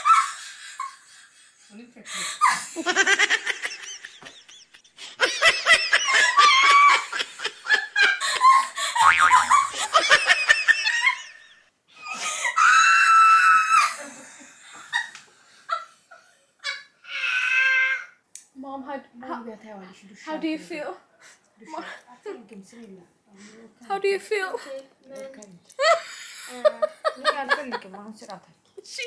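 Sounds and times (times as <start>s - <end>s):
woman laughing hysterically: 0.0s - 1.8s, 2.4s - 15.8s.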